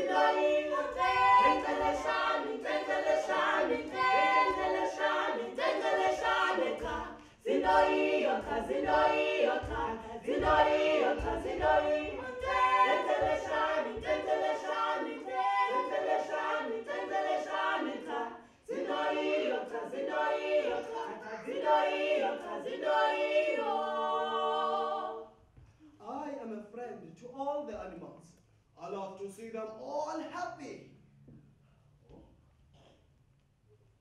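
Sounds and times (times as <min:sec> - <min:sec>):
group singing a cappella: 0:00.0 - 0:25.5.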